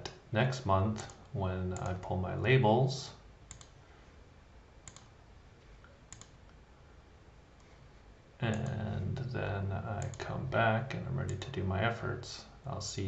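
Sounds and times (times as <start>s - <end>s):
low room hum: 0.0s - 13.0s
computer mouse clicks: 1.0s - 2.0s, 3.5s - 3.8s, 4.8s - 6.6s, 8.5s - 8.8s, 10.0s - 10.3s.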